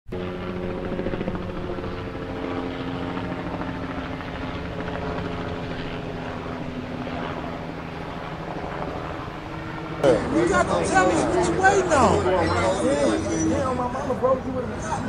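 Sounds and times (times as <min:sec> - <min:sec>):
helicopter engine tones: 0:00.1 - 0:15.0
helicopter rotor beat: 0:00.1 - 0:15.0.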